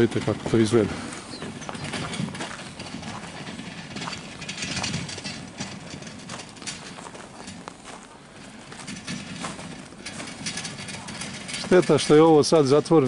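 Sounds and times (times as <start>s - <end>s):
footsteps crunching on icy snow: 6.3s - 10.4s.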